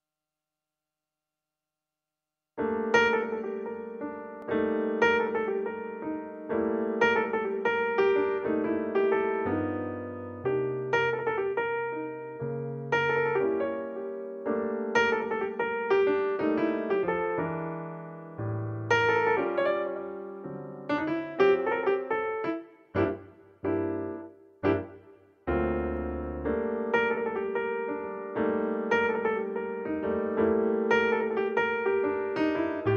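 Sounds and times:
solo piano music: 0:02.6 - 0:32.9.

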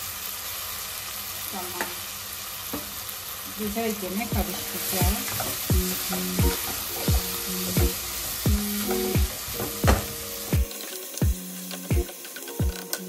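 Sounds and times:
vegetables sizzling in oil: 0:00.0 - 0:13.0
background music with a steady beat: 0:04.3 - 0:13.0.

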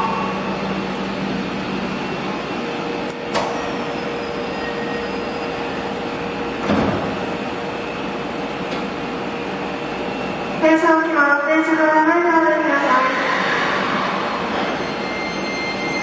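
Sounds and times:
train hum: 0:00.0 - 0:16.0
train doors thudding shut: 0:06.6 - 0:07.3.

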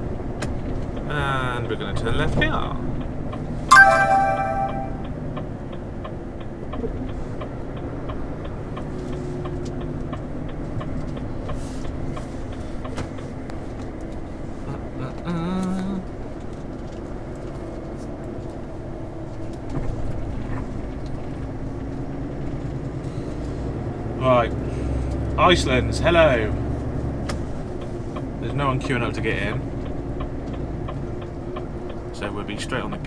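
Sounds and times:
truck diesel engine and road noise: 0:00.0 - 0:03.6, 0:05.2 - 0:33.0
brief tone: 0:03.7 - 0:05.1.

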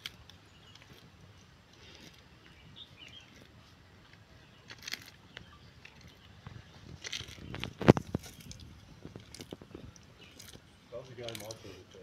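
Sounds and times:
bird chirping: 0:00.0 - 0:12.0
crisp crunches and clicks: 0:00.0 - 0:12.0
tortoise tearing at leaf: 0:00.0 - 0:12.0.

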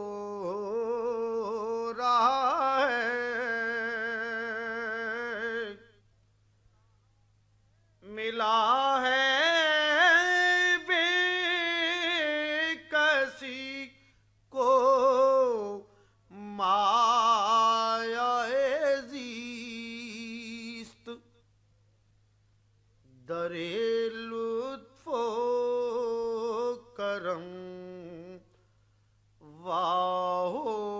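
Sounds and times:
man singing: 0:00.0 - 0:06.0, 0:08.0 - 0:21.3, 0:23.1 - 0:28.6, 0:29.4 - 0:30.9
breaths: 0:15.8 - 0:16.3, 0:28.5 - 0:29.3.

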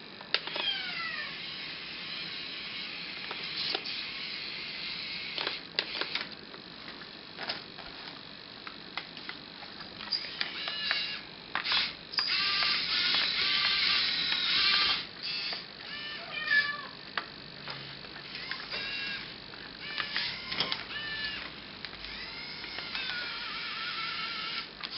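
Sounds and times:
steady high motor whir: 0:00.0 - 0:24.9
toy model clicks: 0:10.3 - 0:15.6, 0:19.8 - 0:24.9
kitten meowing: 0:15.9 - 0:17.0.

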